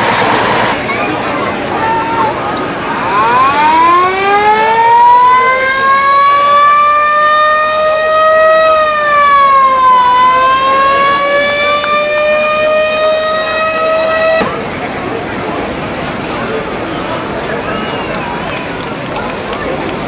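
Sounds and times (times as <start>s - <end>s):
mechanical fire engine siren wailing: 2.3s - 14.6s.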